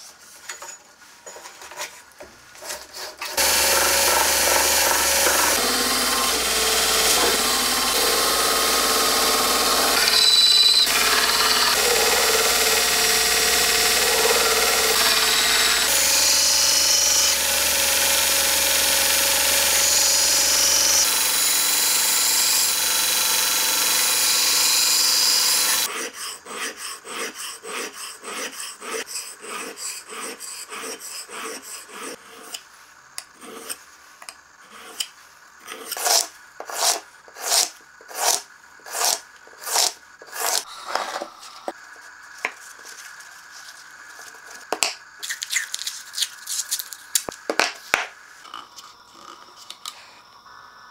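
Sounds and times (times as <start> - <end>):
belt grinder grinding steel: 3.4 - 25.9, 36.0 - 40.7
blade scraping on sharpening stone: 35.7 - 40.7.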